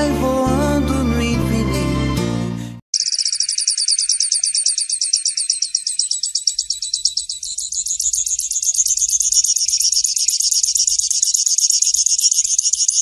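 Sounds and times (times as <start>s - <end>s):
finch singing high trill: 3.0s - 13.0s.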